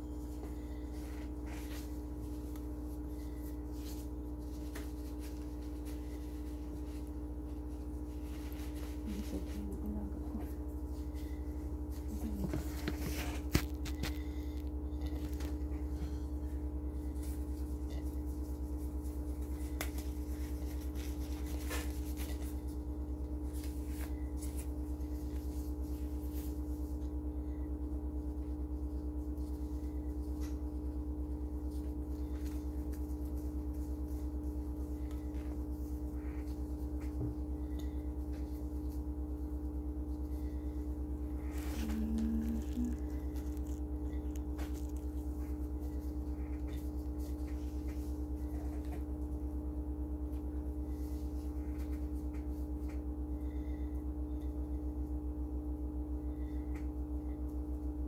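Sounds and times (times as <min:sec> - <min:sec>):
low machine hum: 0:00.0 - 0:58.0
gauze rustling and crinkling: 0:38.0 - 0:48.4.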